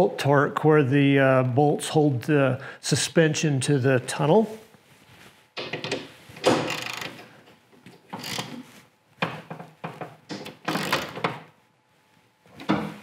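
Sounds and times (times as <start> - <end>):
socket wrench metallic scraping and clunking: 5.7 - 7.2, 8.1 - 8.6.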